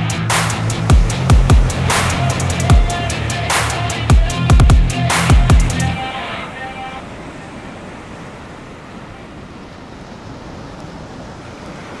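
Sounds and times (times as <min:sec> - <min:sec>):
music: 0:00.0 - 0:07.0
waves breaking: 0:00.0 - 0:12.0.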